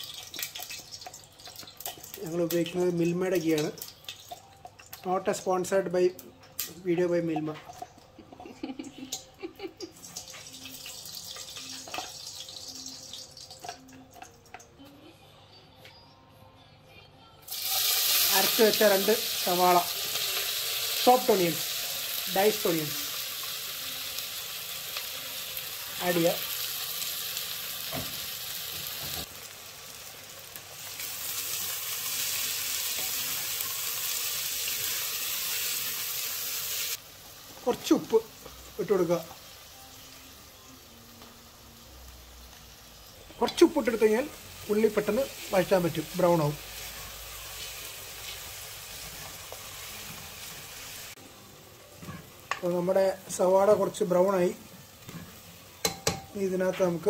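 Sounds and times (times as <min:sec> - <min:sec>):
ghee sizzling and crackling: 0:00.0 - 0:14.7, 0:17.5 - 0:57.0
spoon stirring in metal pot: 0:55.0 - 0:56.4.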